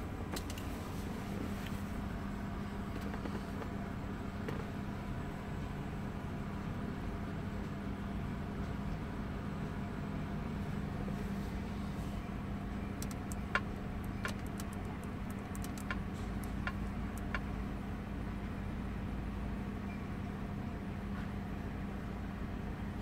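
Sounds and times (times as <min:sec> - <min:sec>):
touchscreen clicks: 0:12.9 - 0:17.5
car engine idling: 0:12.9 - 0:17.6.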